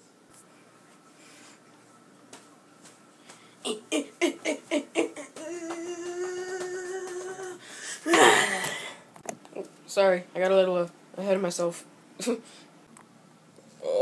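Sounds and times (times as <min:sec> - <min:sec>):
boy grunting: 0:03.6 - 0:09.0
boy humming a steady note: 0:03.7 - 0:08.8.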